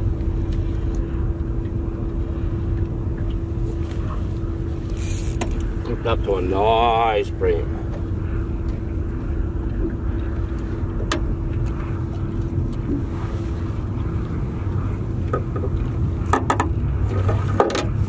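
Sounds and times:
low rumble with motor hum: 0:00.0 - 0:18.0
sharp clicks and knocks: 0:15.3 - 0:16.8.

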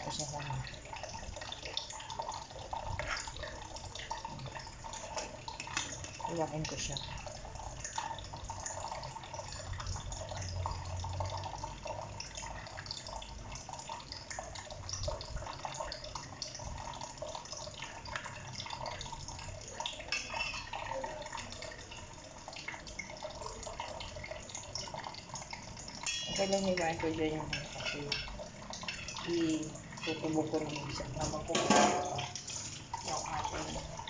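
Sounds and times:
water running from tap: 0:00.0 - 0:34.0.

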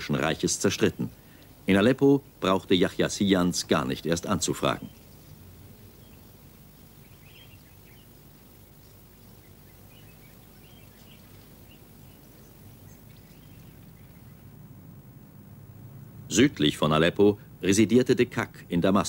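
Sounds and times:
low hum and hiss: 0:00.0 - 0:19.0
faint high chirps: 0:03.9 - 0:17.8.

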